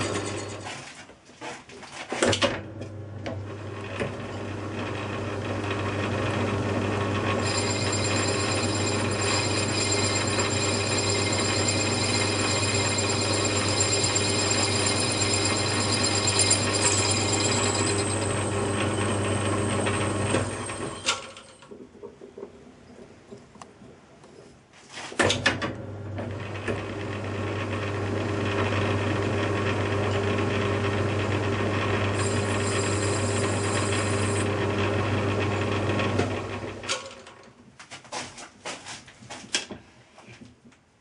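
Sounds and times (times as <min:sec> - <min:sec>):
metal lathe running: 0:00.0 - 0:00.6, 0:03.8 - 0:21.7, 0:26.5 - 0:36.8
high whining ring of cutting: 0:07.4 - 0:21.7, 0:32.1 - 0:34.6.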